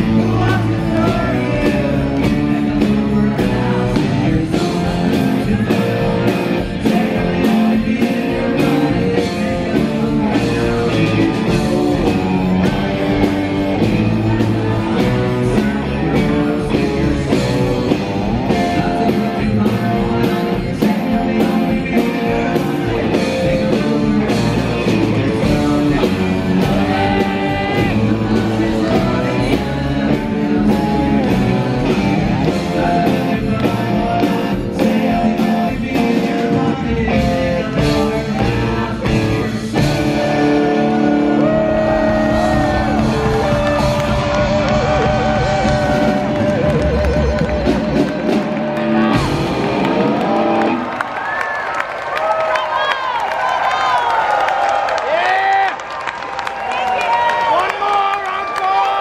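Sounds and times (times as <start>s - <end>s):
steady drum beat: 0.0s - 50.7s
person singing: 0.0s - 50.8s
live rock band playing: 0.0s - 51.8s.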